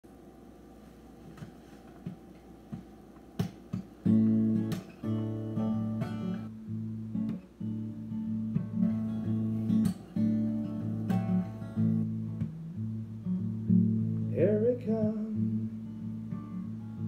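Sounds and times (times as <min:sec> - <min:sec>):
acoustic guitar strummed chords: 0:03.4 - 0:17.0.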